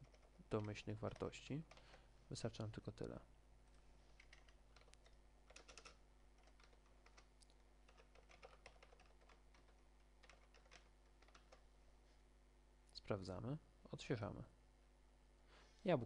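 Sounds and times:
faint typing on keyboard: 0.0s - 3.2s, 4.1s - 11.7s.

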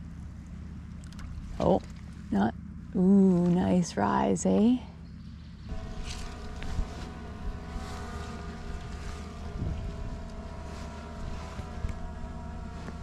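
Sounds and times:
wind rumble on microphone: 5.6s - 13.0s.

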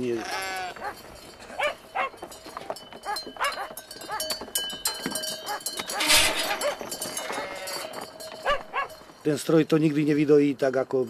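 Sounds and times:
sheep bleating: 0.0s - 1.8s, 5.9s - 8.6s.

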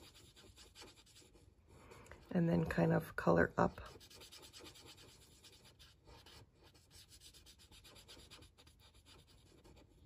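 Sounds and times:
marker scratching on card: 0.0s - 1.9s, 3.8s - 10.0s.

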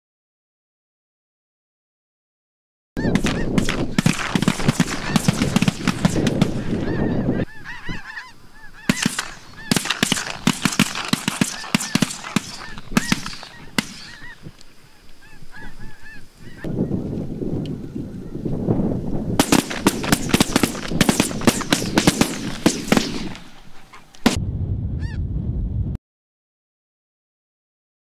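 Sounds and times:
flock of geese honking: 3.0s - 16.7s.

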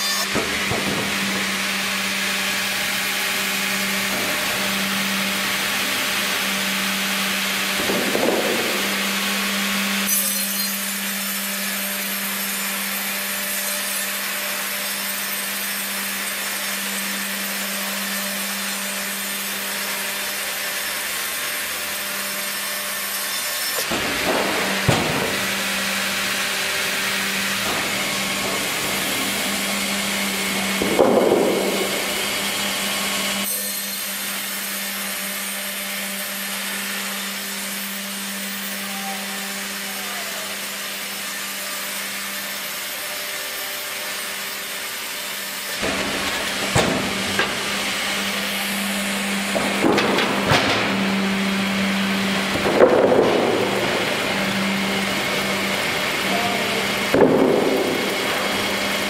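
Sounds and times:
band saw cutting through log: 0.0s - 59.0s
machine hum: 0.4s - 10.1s, 23.9s - 33.5s, 45.7s - 59.0s.

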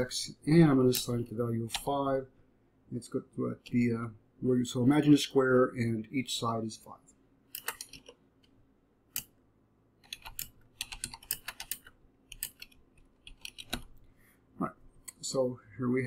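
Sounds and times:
typing on computer keyboard: 7.5s - 8.2s, 10.0s - 14.0s.

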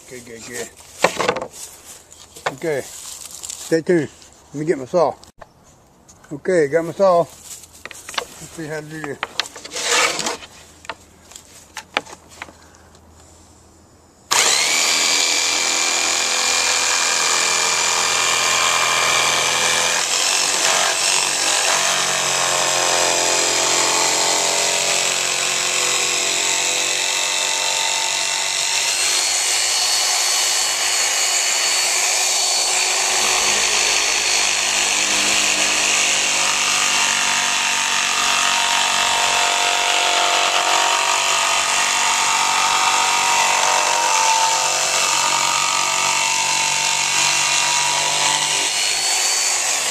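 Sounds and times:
jigsaw cutting wood: 14.3s - 49.9s.

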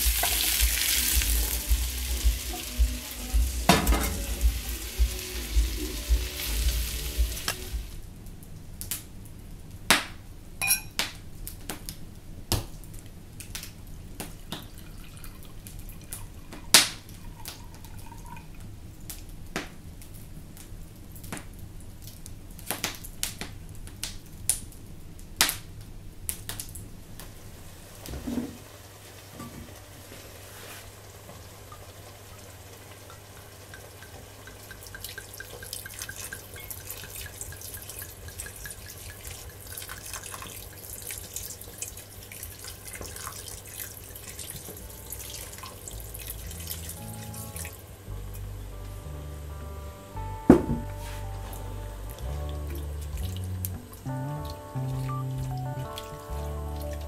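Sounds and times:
food sizzling in a pan: 0.0s - 8.0s, 27.3s - 48.0s, 50.9s - 57.0s
utensils and dishes clinking: 3.7s - 4.4s, 10.6s - 11.0s
utensil knocking on pan: 50.5s - 50.9s.

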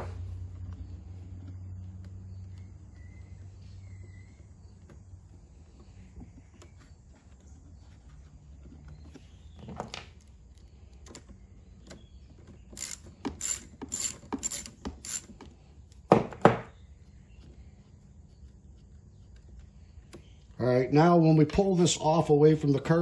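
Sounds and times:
socket ratchet clicking: 12.8s - 15.5s.

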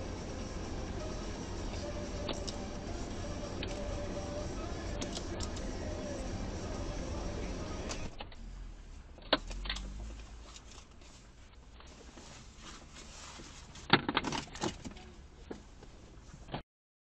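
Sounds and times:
car interior engine rumble: 0.0s - 16.6s
sharp clicks and rattles: 4.9s - 5.8s, 13.8s - 15.1s.

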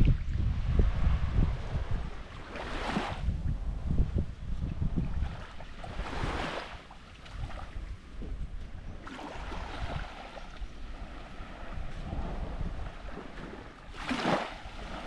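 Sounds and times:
wind buffeting microphone: 0.0s - 15.0s
waves washing onto sand: 4.7s - 15.0s.

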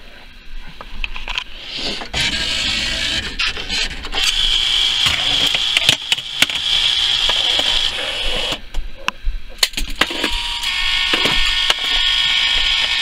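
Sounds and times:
claw machine mechanical whir: 2.0s - 8.6s, 9.9s - 13.0s.

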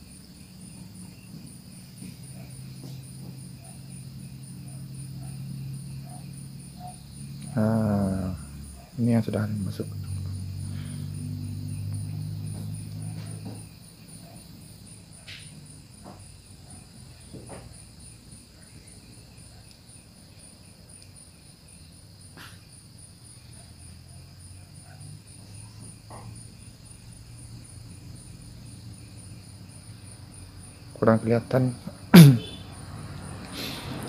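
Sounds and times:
crickets chirping: 0.0s - 34.0s.

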